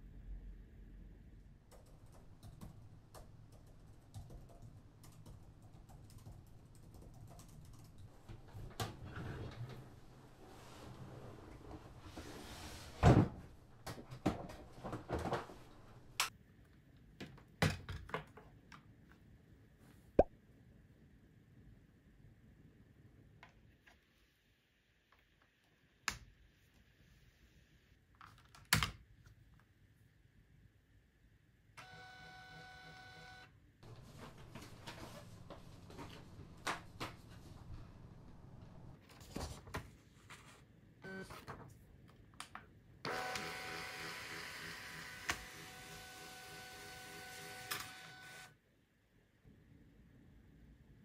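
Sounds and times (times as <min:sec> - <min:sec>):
scanner motor whirring: 0:43.1 - 0:48.5.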